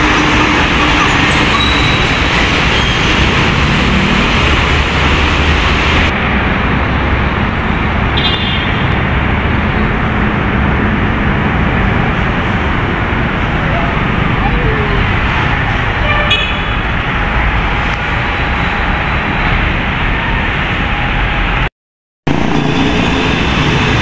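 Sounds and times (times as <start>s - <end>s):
road traffic passing: 0.0s - 21.7s, 22.3s - 24.0s
truck rolling past: 22.3s - 24.0s.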